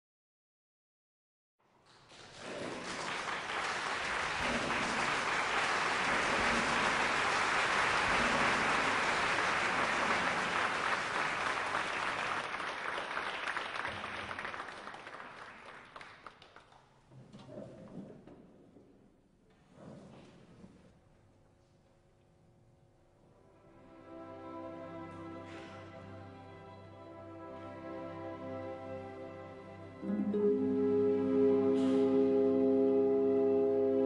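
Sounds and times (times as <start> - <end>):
audience applauding: 1.8 - 16.9, 31.2 - 33.2.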